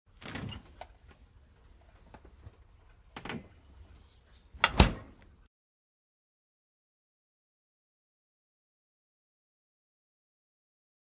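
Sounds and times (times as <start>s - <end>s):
refrigerator door slamming: 4.6s - 5.2s.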